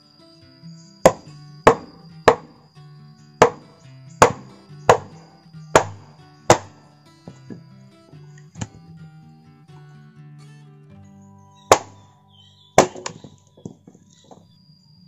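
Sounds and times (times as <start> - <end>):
background music: 0.0 - 13.8
blade chopping: 1.1 - 2.6, 3.4 - 5.2, 5.8 - 6.8, 11.7 - 12.0, 12.8 - 13.3.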